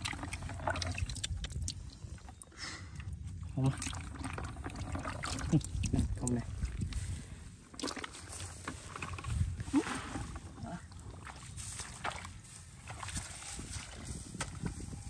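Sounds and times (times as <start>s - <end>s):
splashing steps in mud and water: 3.3s - 14.8s.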